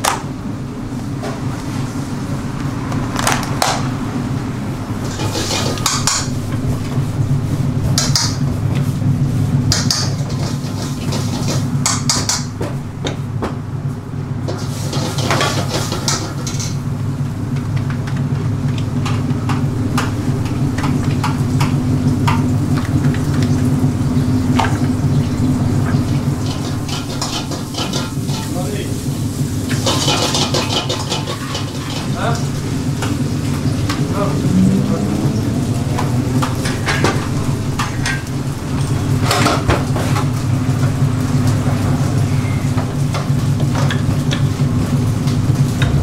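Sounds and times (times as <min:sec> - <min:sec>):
low kitchen hum: 0:00.0 - 0:46.0
dishes pots and utensils clattering: 0:05.0 - 0:06.4, 0:09.6 - 0:12.8, 0:14.5 - 0:16.8, 0:25.9 - 0:28.8, 0:29.7 - 0:34.1, 0:36.0 - 0:40.3, 0:42.3 - 0:44.6.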